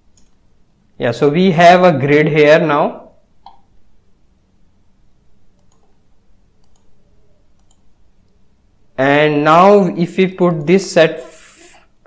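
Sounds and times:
faint computer mouse clicks: 6.6 - 6.9, 7.6 - 7.8.

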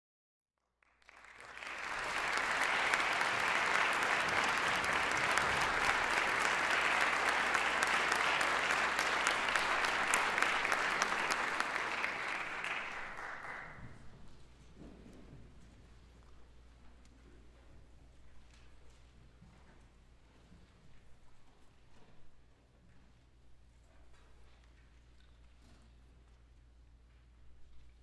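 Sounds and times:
audience applauding: 0.8 - 14.0.

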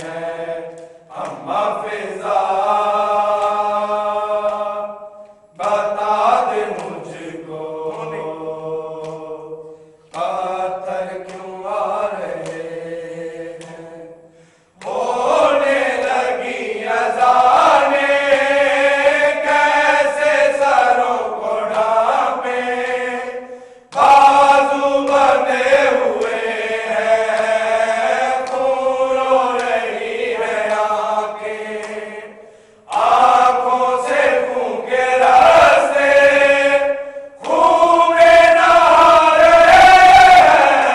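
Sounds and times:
men chanting together: 0.0 - 40.9.

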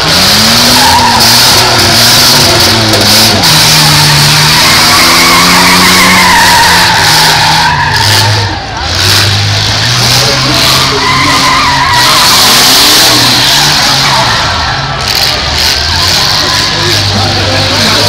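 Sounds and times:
car engines revving: 0.0 - 18.0
tyres spinning and squealing: 0.0 - 18.0.

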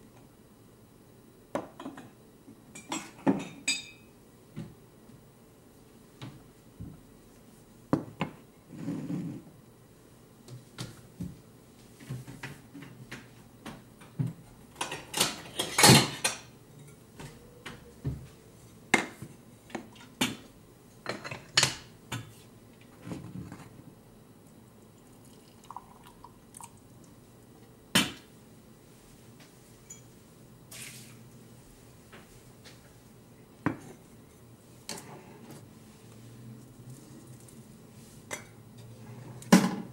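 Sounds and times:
ceramic dishes clinking: 2.8 - 4.1.

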